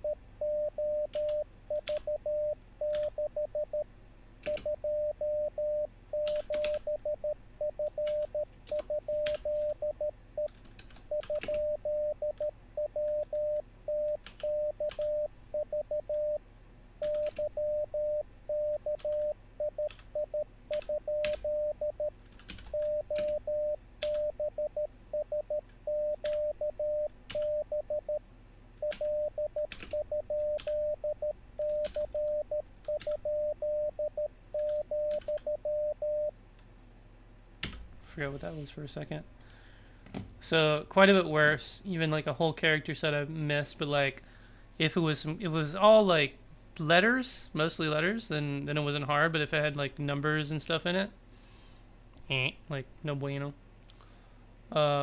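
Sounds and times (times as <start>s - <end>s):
morse code tone: 0.0s - 3.8s, 4.5s - 10.5s, 11.1s - 16.4s, 17.0s - 22.1s, 22.7s - 28.2s, 28.8s - 36.3s.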